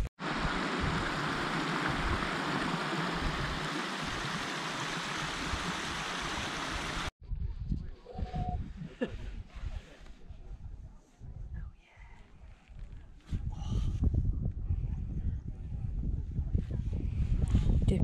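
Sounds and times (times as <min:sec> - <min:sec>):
stream flowing over stones: 0:00.2 - 0:07.1.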